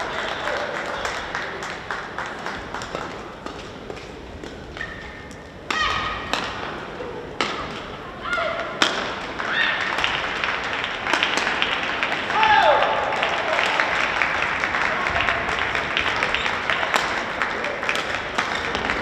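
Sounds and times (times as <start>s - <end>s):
rackets hitting shuttlecocks: 2.8s - 12.4s, 15.9s - 19.0s.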